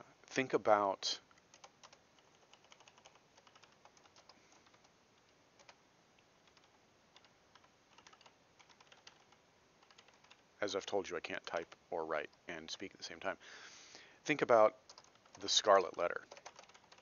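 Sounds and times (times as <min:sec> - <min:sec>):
faint keyboard typing: 0:01.2 - 0:13.0, 0:14.8 - 0:17.0.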